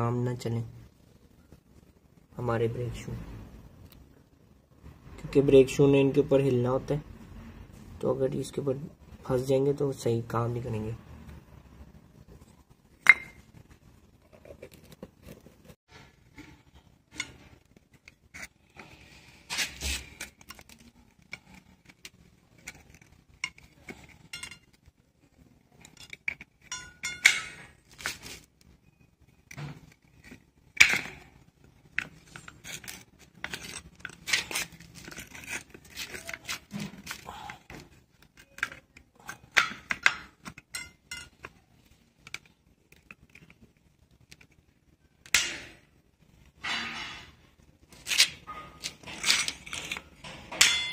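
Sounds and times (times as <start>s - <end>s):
metal clinks and scrapes: 15.9s - 24.9s, 25.7s - 28.5s, 31.9s - 37.2s, 38.3s - 41.6s, 48.0s - 50.9s.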